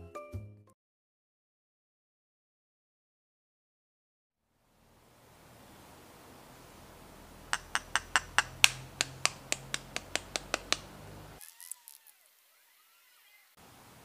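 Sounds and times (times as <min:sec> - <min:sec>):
eggshell crackling: 0:07.4 - 0:12.0
egg tapping against glass bowl: 0:07.5 - 0:11.0.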